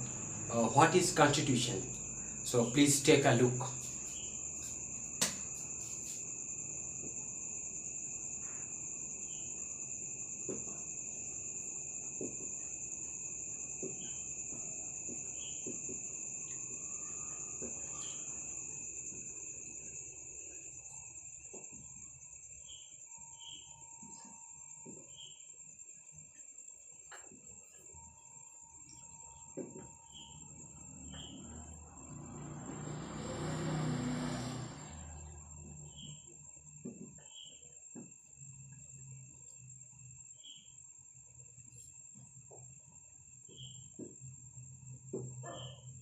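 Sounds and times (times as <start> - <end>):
crickets trilling: 0.0 - 46.0.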